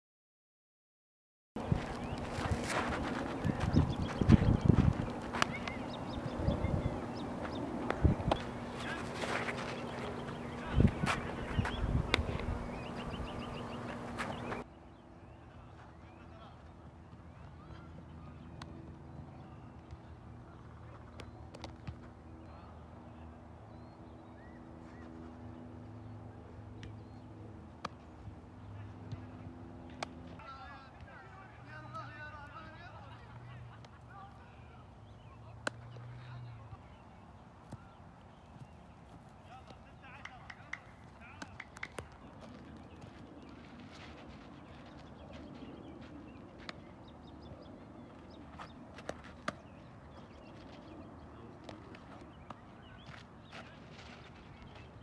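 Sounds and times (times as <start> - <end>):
low hum: 1.6 - 14.8
low outdoor background noise: 1.6 - 55.0
bird chirps: 3.3 - 7.7, 9.6 - 16.3
baseball popping into leather glove: 40.2 - 43.0.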